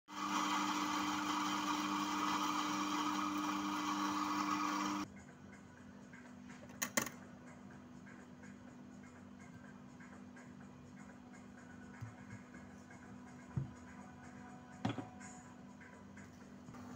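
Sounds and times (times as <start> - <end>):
coffee grinder running: 0.1 - 5.1.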